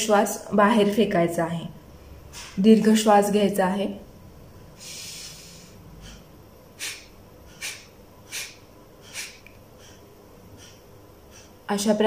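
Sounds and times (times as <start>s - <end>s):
forceful exhalations through nose: 4.8s - 11.6s
deep inhale: 4.8s - 11.7s.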